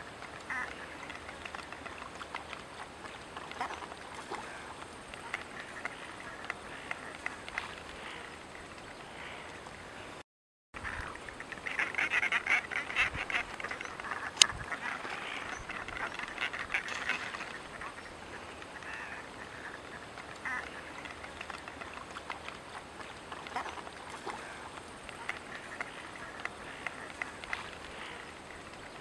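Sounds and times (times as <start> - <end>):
cormorants croaking calls: 0.0 - 10.0, 10.8 - 29.0.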